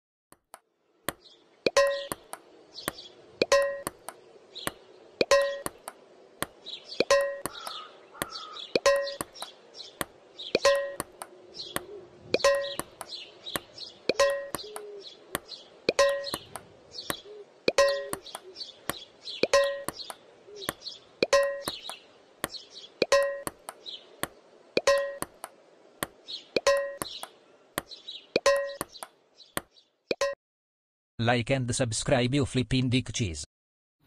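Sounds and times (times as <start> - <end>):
ping-pong play: 1.7 - 16.7, 17.7 - 20.2, 21.2 - 21.8, 22.4 - 29.0.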